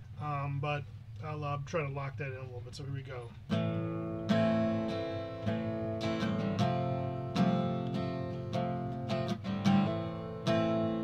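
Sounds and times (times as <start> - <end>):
acoustic guitar strumming: 3.2 - 11.0.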